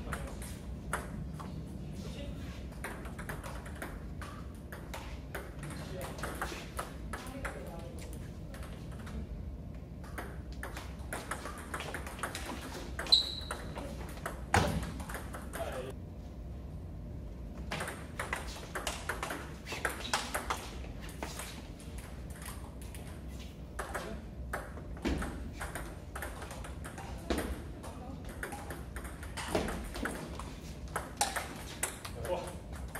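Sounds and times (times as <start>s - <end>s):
ping-pong ball clicking: 23.8s - 30.2s.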